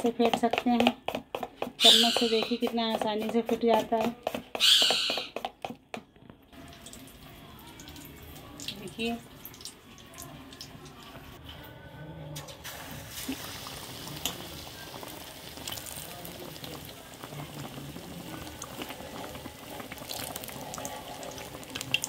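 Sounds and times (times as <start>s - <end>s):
patty deep-frying in hot oil: 12.5s - 22.0s
oil popping: 12.6s - 22.0s.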